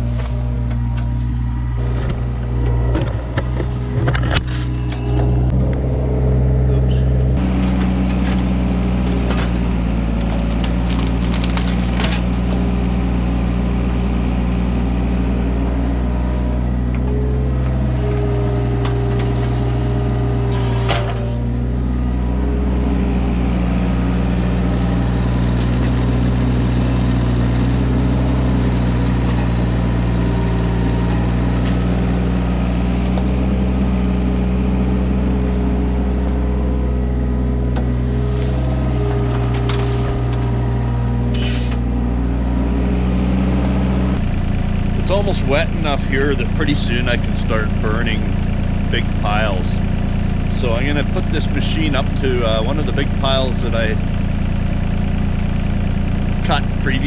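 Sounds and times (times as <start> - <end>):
excavator diesel engine: 0.0 - 57.0
wood and roots snapping: 9.4 - 12.4.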